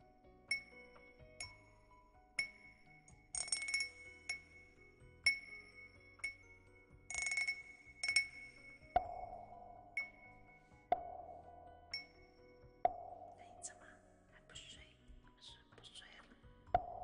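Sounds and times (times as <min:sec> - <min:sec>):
glass cup tapping: 0:00.5 - 0:01.7, 0:07.1 - 0:12.2.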